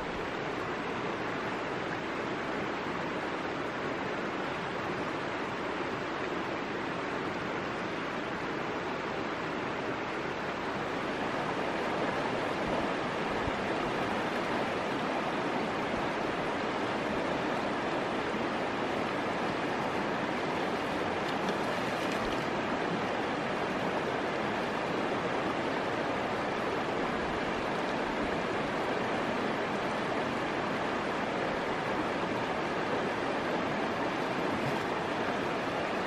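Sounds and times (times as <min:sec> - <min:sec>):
water rushing over stones: 0:10.5 - 0:36.0.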